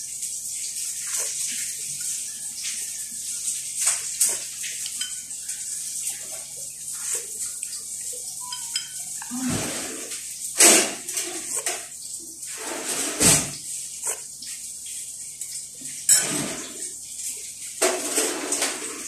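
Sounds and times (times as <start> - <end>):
metal spoon clinking in glass jar: 8.4 - 9.1.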